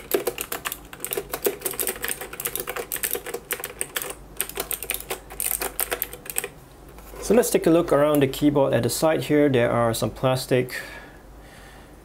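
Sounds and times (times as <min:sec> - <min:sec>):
mechanical keyboard typing: 0:00.0 - 0:06.6.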